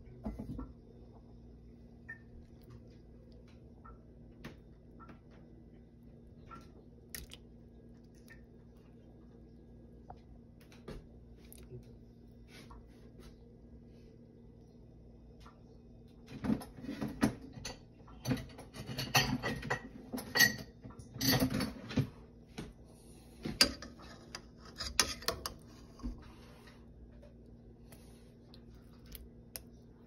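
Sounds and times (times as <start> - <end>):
kitchenware clicking and clattering: 16.4 - 22.2, 23.4 - 26.2
steady low hum: 21.3 - 30.0.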